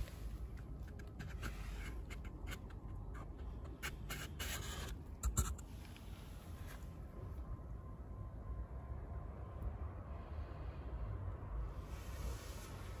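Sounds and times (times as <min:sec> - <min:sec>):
hand rubbing paper speaker cone: 0:00.0 - 0:06.8.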